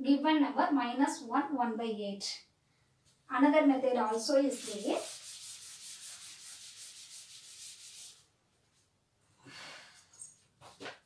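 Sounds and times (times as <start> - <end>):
cloth scrubbing chalk off blackboard: 4.1 - 8.3.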